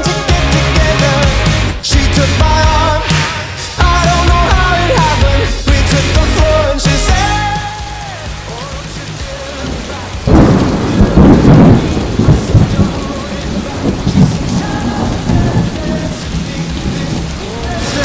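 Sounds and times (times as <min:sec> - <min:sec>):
rain hissing: 0:00.0 - 0:18.0
thunder rumbling: 0:08.6 - 0:18.0.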